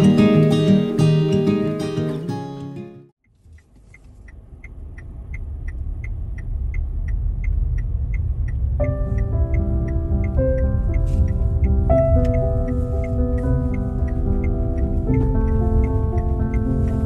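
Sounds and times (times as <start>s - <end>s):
music: 0.0s - 3.2s, 8.8s - 17.0s
high ticking: 3.2s - 17.0s
low rumble: 4.2s - 17.0s.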